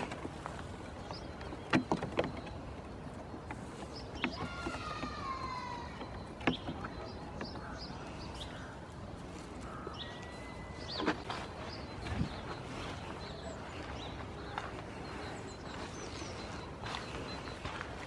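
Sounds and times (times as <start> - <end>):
hooves knocking on wooden pallets: 0.0 - 8.6
outdoor background noise: 0.0 - 18.0.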